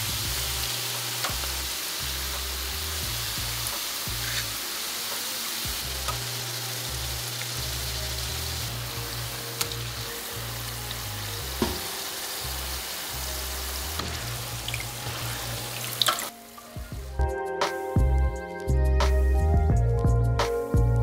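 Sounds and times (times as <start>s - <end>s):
dough sizzling in hot oil: 0.0s - 16.8s.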